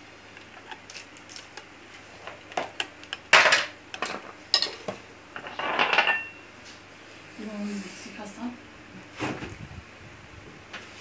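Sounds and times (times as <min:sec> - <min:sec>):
plates and cutlery clattering: 0:03.3 - 0:06.4.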